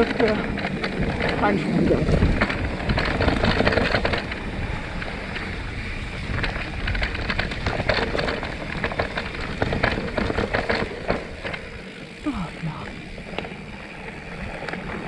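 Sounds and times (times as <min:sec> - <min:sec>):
bike clicks and knocks over bumps: 0:00.0 - 0:15.0
bike tyres rumbling on dirt: 0:00.0 - 0:15.0
wind buffeting microphone: 0:00.0 - 0:15.0.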